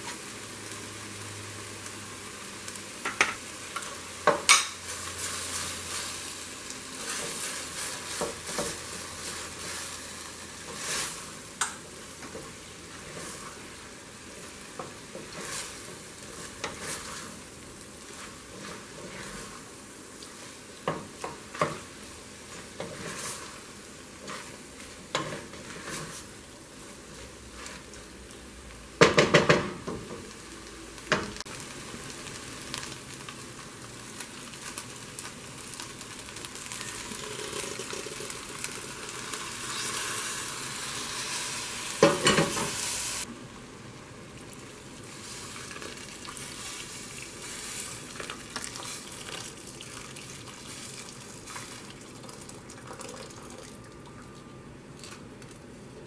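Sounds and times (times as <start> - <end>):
food sizzling in a pot: 0.0 - 55.4.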